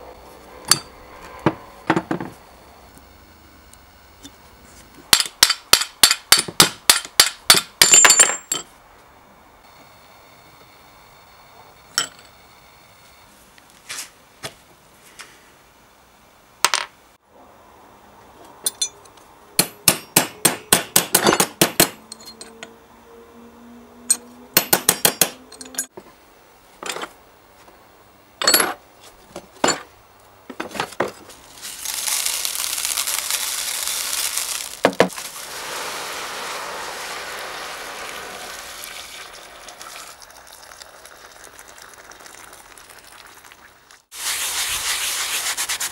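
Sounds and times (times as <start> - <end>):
metal parts clinking: 25.5 - 25.9
water pouring into tub: 32.8 - 44.1.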